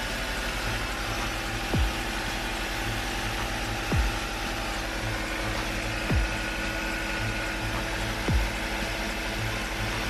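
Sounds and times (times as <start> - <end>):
diesel engine running: 0.0 - 10.0.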